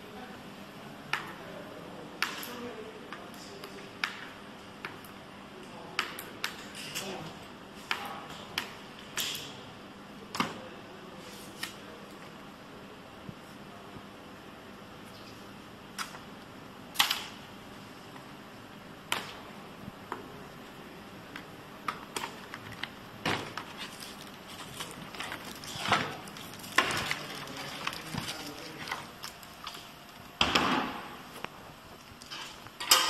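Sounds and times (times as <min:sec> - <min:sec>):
plastic wrap and cardboard rustling: 0:22.4 - 0:30.3.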